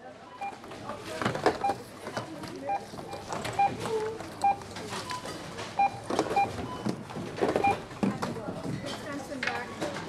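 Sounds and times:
barcode scanner beeps: 0:01.6 - 0:07.0, 0:07.6 - 0:07.9.

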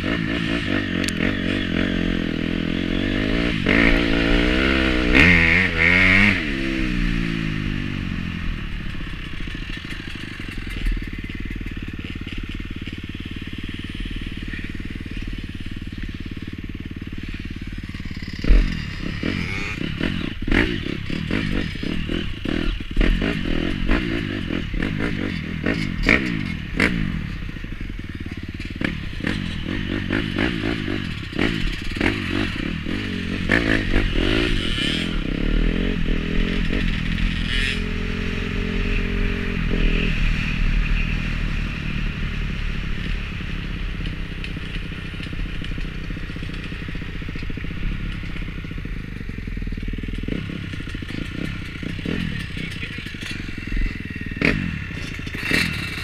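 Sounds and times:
dirt bike engine running: 0:00.0 - 0:56.0
knocks and clatters over bumps: 0:08.7 - 0:13.5, 0:44.0 - 0:56.0.

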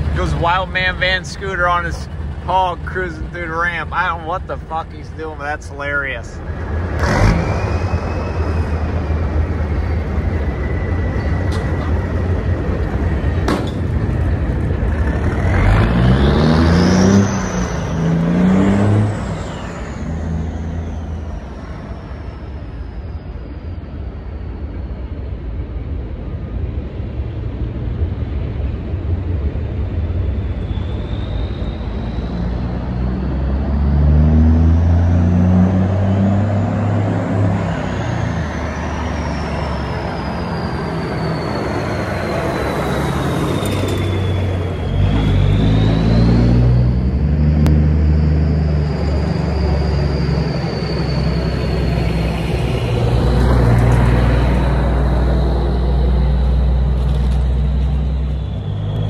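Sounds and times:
truck diesel engine running: 0:00.0 - 0:25.2, 0:34.3 - 0:59.0
turbo whistle: 0:30.4 - 0:33.2, 0:38.8 - 0:46.8, 0:47.9 - 0:53.0.

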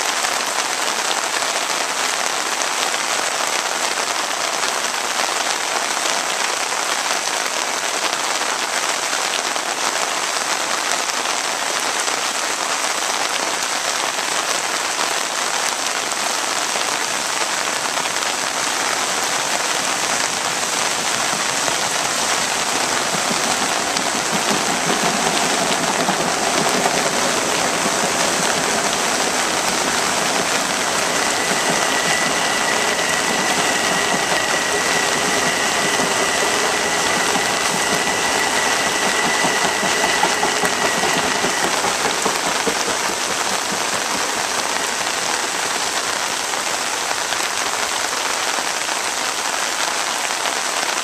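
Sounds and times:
heavy rain pouring: 0:00.0 - 0:51.0
faint steady high tone: 0:18.8 - 0:45.4.

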